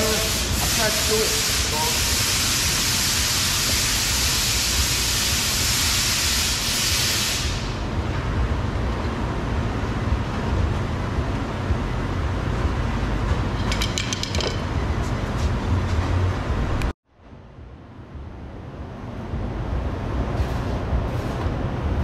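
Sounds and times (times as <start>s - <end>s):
loud steady hiss: 0.0s - 7.9s
low steady rumble: 7.7s - 22.0s.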